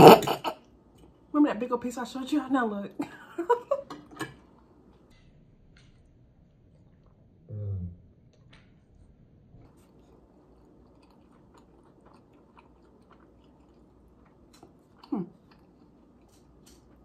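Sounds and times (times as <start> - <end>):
wet chewing and mouth clicks: 4.4 - 7.4, 8.2 - 17.0.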